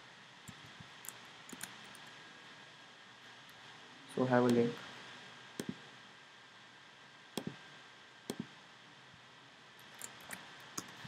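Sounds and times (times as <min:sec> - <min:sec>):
steady low hiss: 0:00.0 - 0:11.0
computer mouse clicks: 0:00.5 - 0:02.1, 0:05.6 - 0:05.8, 0:07.4 - 0:07.6, 0:08.3 - 0:08.5, 0:09.8 - 0:11.0.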